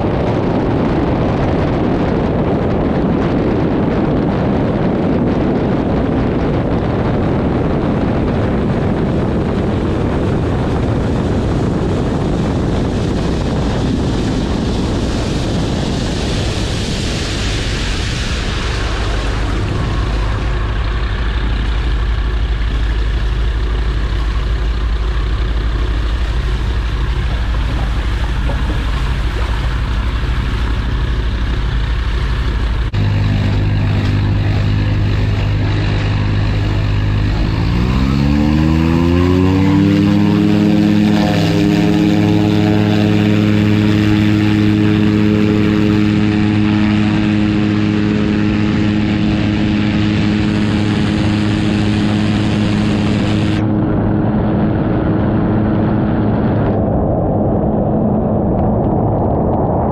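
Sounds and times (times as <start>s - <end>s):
aircraft engine and propeller revving: 0.0s - 59.9s
water spray rushing off hull: 13.2s - 22.9s, 25.6s - 53.6s.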